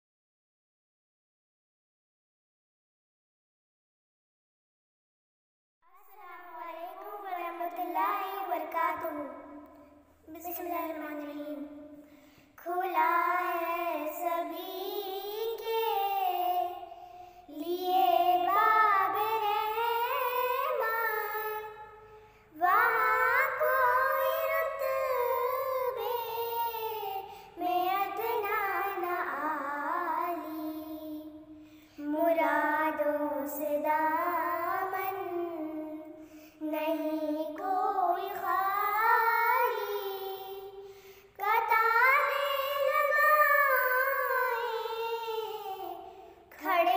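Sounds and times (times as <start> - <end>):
girls singing unaccompanied: 6.1 - 9.5, 12.6 - 21.9, 22.5 - 46.9.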